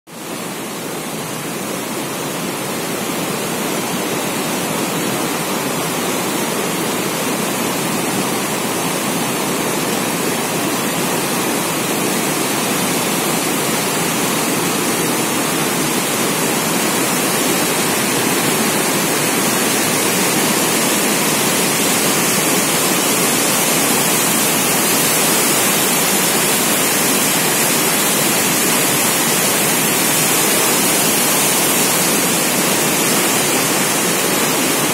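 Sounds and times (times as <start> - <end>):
river rushing: 0.2 - 34.9.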